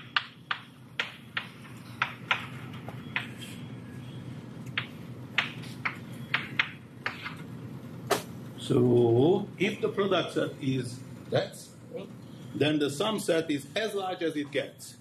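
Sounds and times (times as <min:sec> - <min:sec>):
chalk tapping on a board: 0:00.0 - 0:03.4, 0:04.7 - 0:07.4
low room hum: 0:00.0 - 0:15.0.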